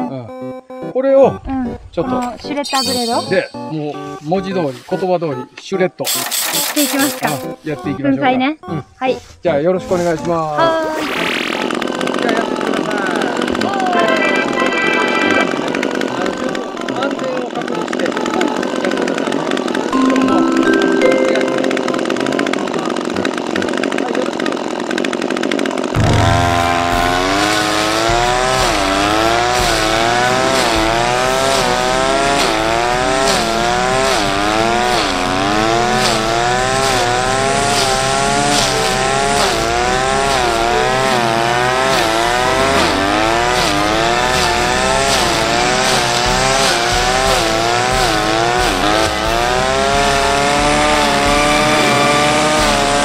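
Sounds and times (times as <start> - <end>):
brush cutter engine revving: 6.1 - 7.6, 10.0 - 21.8, 22.4 - 53.0
blade chopping weeds: 26.0 - 53.0.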